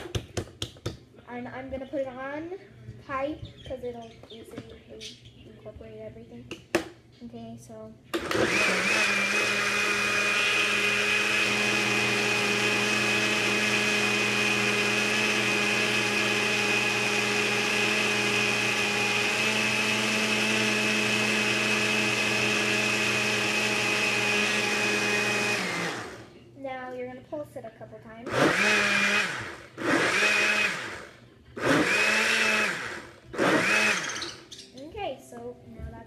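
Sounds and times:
blender running: 0:08.2 - 0:26.3, 0:28.3 - 0:34.4.

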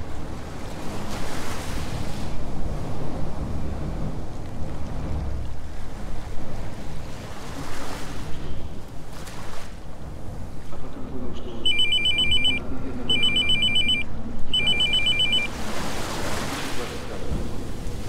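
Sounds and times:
steady background noise: 0:00.0 - 0:18.0
phone warbling ringtone: 0:11.7 - 0:15.5.

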